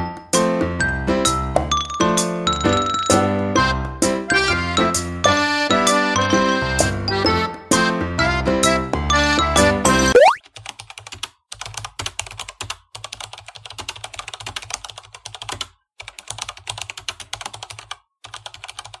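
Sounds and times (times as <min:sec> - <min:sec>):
fast keyboard typing: 0:10.3 - 0:19.0.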